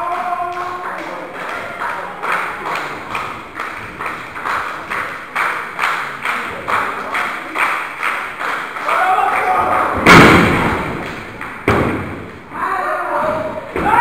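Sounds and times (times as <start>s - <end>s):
audience clapping in unison: 0.0s - 10.0s, 10.9s - 11.6s.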